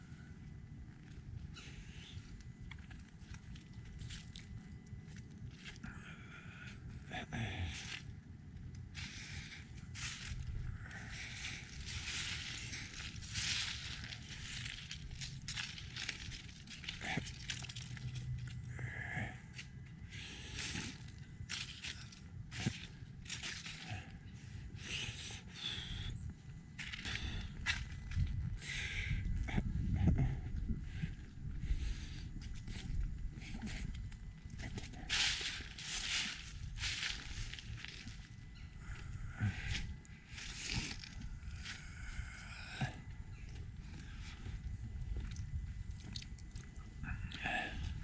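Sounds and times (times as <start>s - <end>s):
wind rumble on microphone: 0.0s - 48.0s
footsteps in dry leaves: 9.0s - 18.5s, 20.3s - 24.1s, 34.6s - 41.8s.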